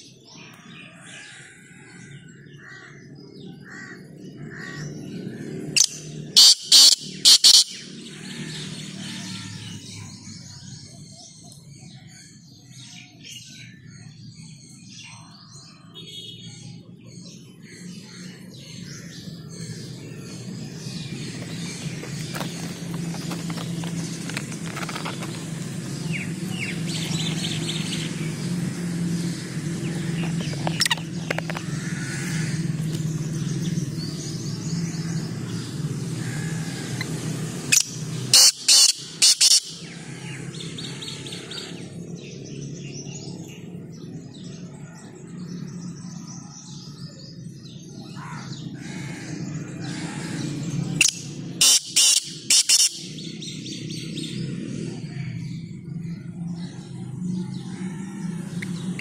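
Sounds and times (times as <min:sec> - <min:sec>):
small birds chirping: 0:00.0 - 0:59.0
francolin calling: 0:05.7 - 0:09.8, 0:36.2 - 0:40.1, 0:51.0 - 0:53.2
steady low hum: 0:19.0 - 0:38.3.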